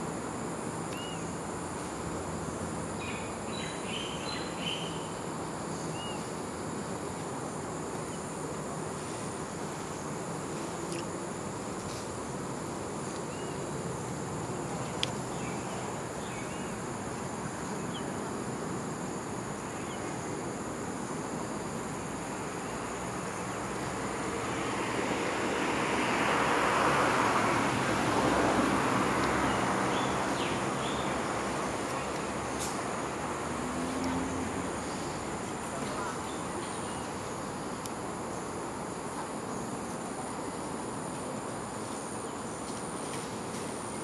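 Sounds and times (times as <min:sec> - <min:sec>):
insects droning: 0:00.0 - 0:44.0.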